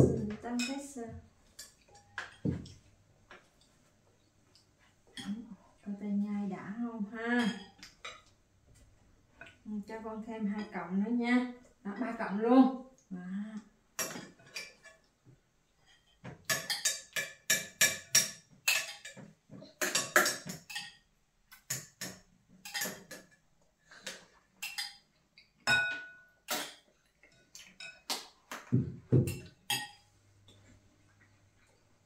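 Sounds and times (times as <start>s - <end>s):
utensils clinking against bowls: 15.9s - 23.4s, 24.6s - 28.2s, 29.2s - 30.0s.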